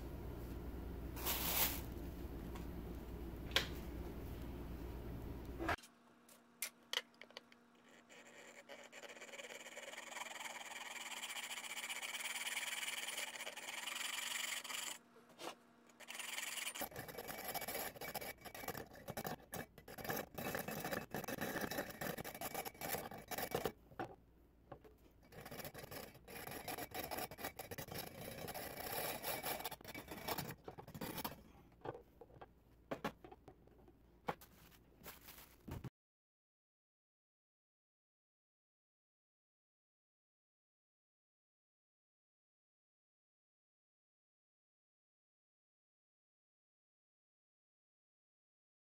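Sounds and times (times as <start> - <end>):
hacksaw cutting metal: 7.9 - 15.0, 16.0 - 23.8, 25.3 - 31.4.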